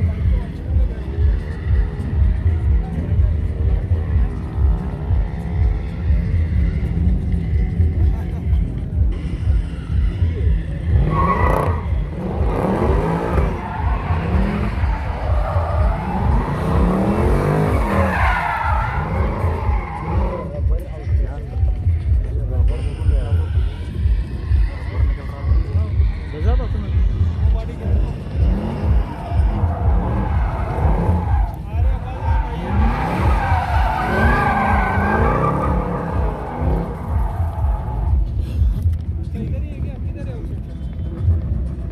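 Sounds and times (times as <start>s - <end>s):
car engine revving: 0.0s - 39.5s
tyres squealing on tarmac: 10.8s - 20.7s, 28.1s - 38.4s.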